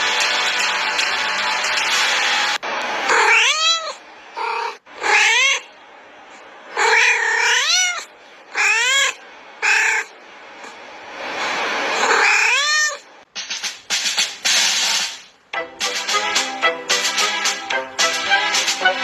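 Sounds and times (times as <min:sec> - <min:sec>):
steady background noise: 0:00.0 - 0:19.0
cat meowing: 0:03.1 - 0:05.7, 0:06.8 - 0:10.1, 0:12.0 - 0:13.0.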